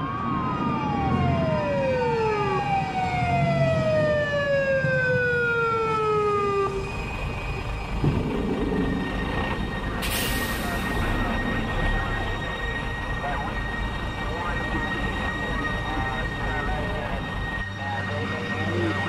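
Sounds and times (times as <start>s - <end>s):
police siren winding down: 0.0s - 19.0s
low rumble: 6.7s - 18.8s.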